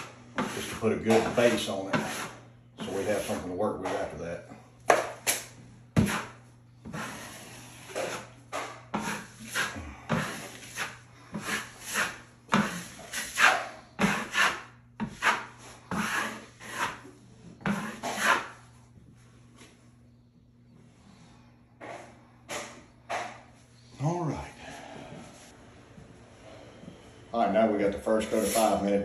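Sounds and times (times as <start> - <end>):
drywall knife scraping a wall: 0.0 - 4.1, 6.0 - 18.6.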